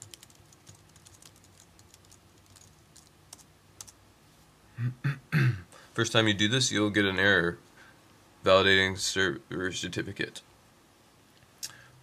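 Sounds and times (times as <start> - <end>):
computer keyboard keystrokes: 0.0 - 4.0.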